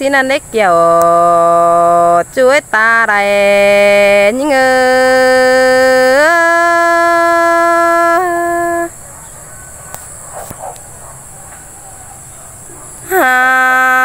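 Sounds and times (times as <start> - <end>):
faint clicks: 9.8 - 10.9.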